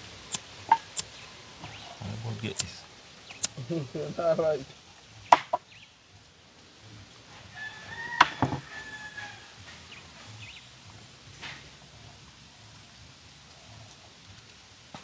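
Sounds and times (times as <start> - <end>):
firewood knocking: 5.3 - 5.6
rooster crowing: 7.5 - 9.7.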